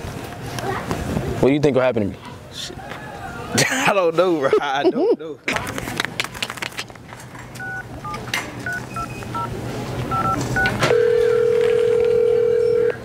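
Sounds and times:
phone keypad tones: 7.6s - 9.5s, 10.1s - 13.0s
phone ringback tone: 7.6s - 9.5s, 10.1s - 13.0s.

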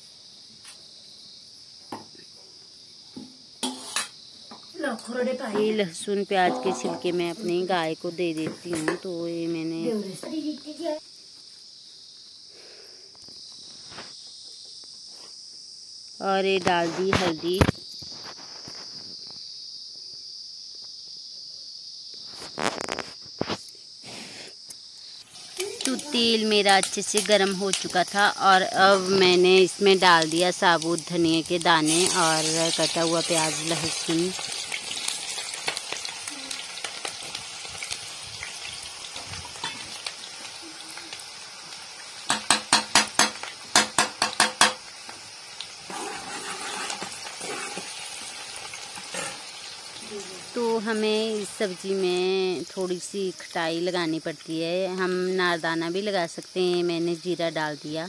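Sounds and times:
crickets chirring: 0.0s - 58.0s
food sizzling in hot oil: 2.7s - 11.1s, 16.2s - 19.2s, 22.2s - 58.0s
metal ladle knocking on pan: 42.3s - 44.8s.

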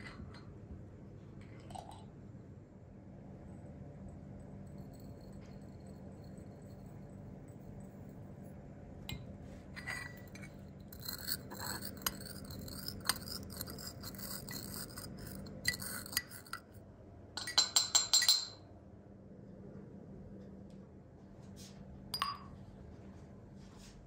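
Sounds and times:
brass pestle grinding in mortar: 9.8s - 16.8s.

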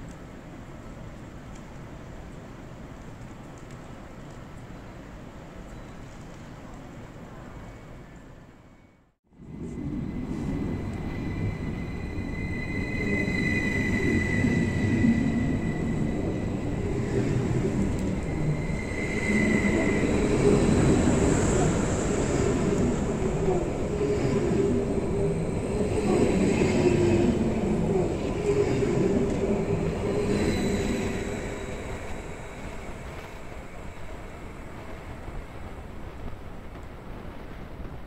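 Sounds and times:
train wheels rumbling on rails: 9.3s - 38.0s
thin high whine: 9.4s - 36.4s.

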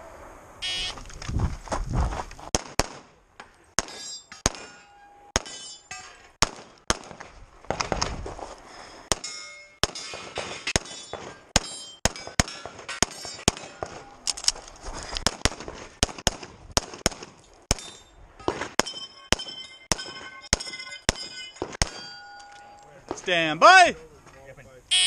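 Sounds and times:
pistol shots: 2.5s - 3.1s, 6.4s - 7.2s, 9.1s - 14.0s
metallic clangs of steel targets: 3.4s - 6.7s, 9.1s - 14.6s, 17.4s - 23.4s.

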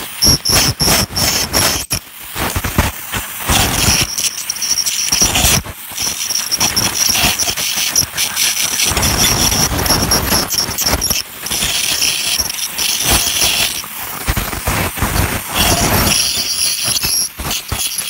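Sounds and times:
dental scaler high-pitched whine: 0.0s - 18.0s
scratchy chattering on tooth: 3.5s - 14.5s, 15.1s - 18.0s.

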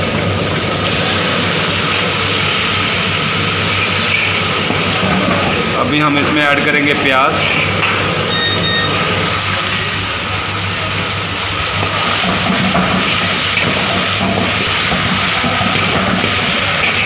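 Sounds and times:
onions sizzling in hot oil: 0.0s - 17.0s
spatula stirring in wok: 11.5s - 17.0s.

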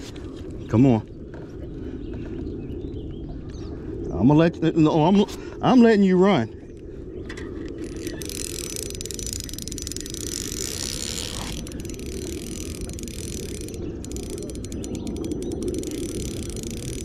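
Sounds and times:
fishing reel drag ratcheting: 7.4s - 17.0s.

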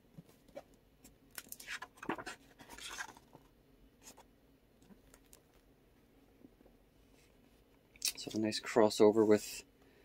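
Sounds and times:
paper rustling: 1.5s - 4.2s.

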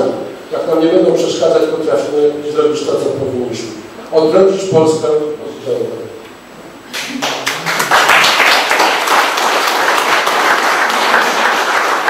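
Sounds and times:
audience applauding: 6.9s - 12.0s.

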